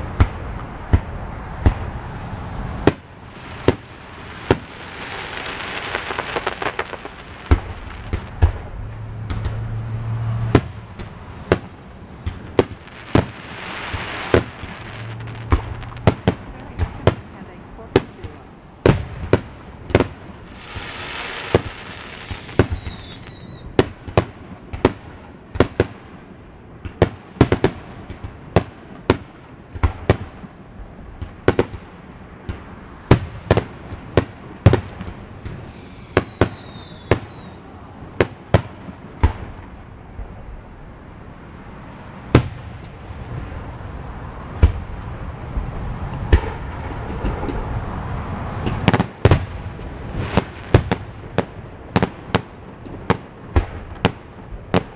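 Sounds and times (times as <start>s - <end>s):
fireworks popping: 2.6s - 26.2s, 26.8s - 40.5s, 44.5s - 54.9s
falling firework whistle: 4.8s - 16.1s, 20.6s - 23.8s, 34.7s - 38.2s.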